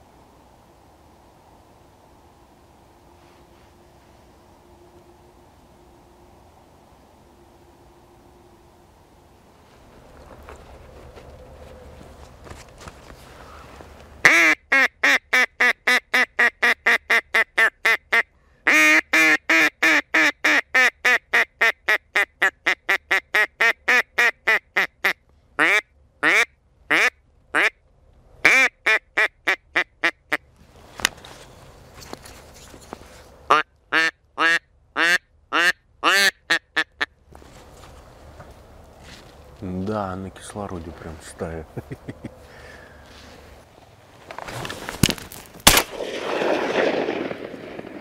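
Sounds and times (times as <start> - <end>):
duck call quacks: 14.2 - 27.8, 28.4 - 30.4, 33.5 - 37.1.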